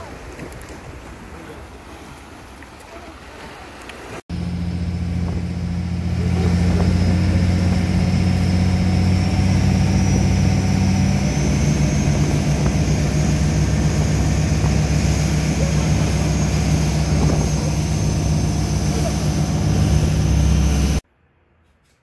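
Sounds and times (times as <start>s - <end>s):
waves washing: 0.0s - 21.0s
boat engine droning: 3.1s - 21.0s
thin high whine: 4.4s - 21.0s.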